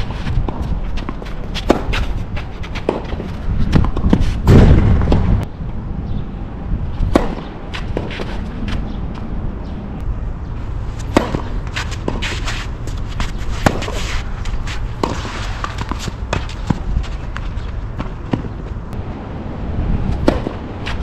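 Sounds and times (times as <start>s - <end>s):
tennis racket hitting ball: 0.0s - 5.2s, 7.1s - 8.7s, 11.0s - 17.4s, 20.2s - 21.0s
tennis ball bouncing on court: 0.1s - 5.4s, 7.1s - 9.3s, 11.0s - 18.7s.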